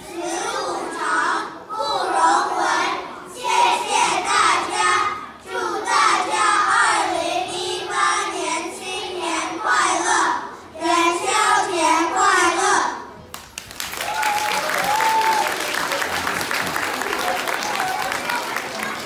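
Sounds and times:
children singing in unison: 0:00.0 - 0:13.1.

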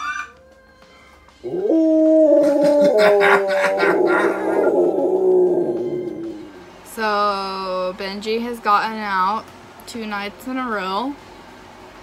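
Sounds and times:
dog howling: 0:01.4 - 0:06.6.

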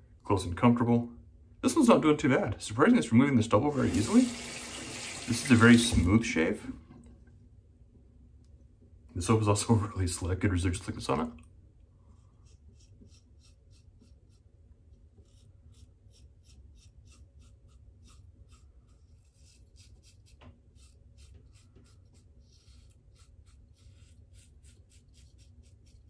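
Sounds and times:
razor scraping through stubble: 0:12.2 - 0:14.5, 0:15.1 - 0:26.0.

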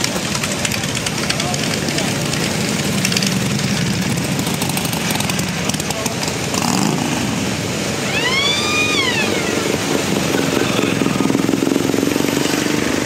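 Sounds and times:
motorcycle engines rumbling: 0:00.0 - 0:13.0
brief high tone: 0:08.0 - 0:11.2.

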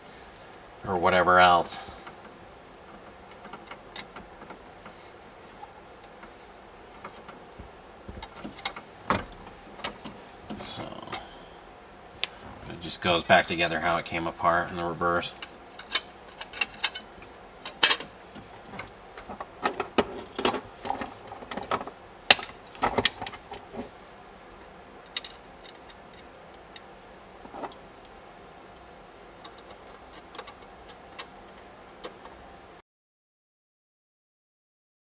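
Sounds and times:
small parts clicking and rattling: 0:15.5 - 0:18.1, 0:25.1 - 0:26.9.

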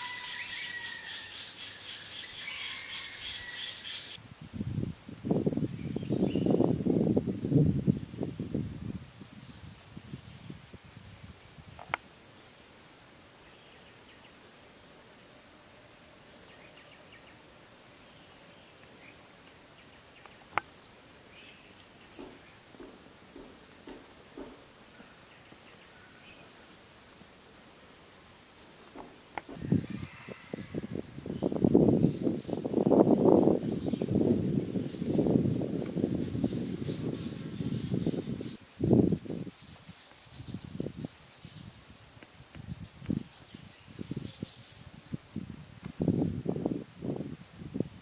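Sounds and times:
insects chorus: 0:00.0 - 0:48.0
low knocks: 0:22.1 - 0:24.7.

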